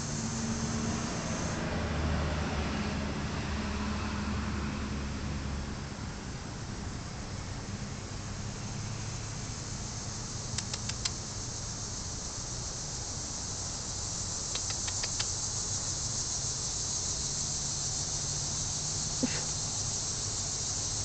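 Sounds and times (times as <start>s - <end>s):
high-pitched hiss: 0.0s - 1.7s, 6.4s - 21.0s
light clicks: 10.6s - 11.2s, 14.5s - 15.4s.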